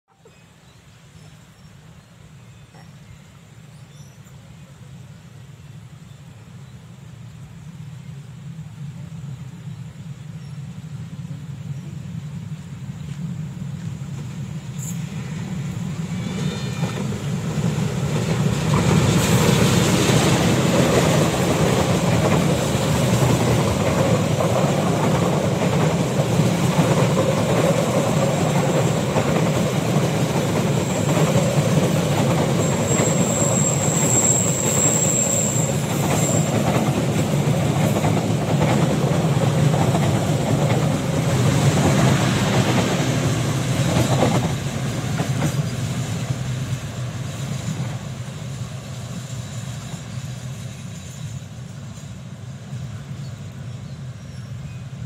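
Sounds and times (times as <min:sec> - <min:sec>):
train rumbling past: 0:00.2 - 0:55.0
high wheel squeal: 0:32.4 - 0:36.7.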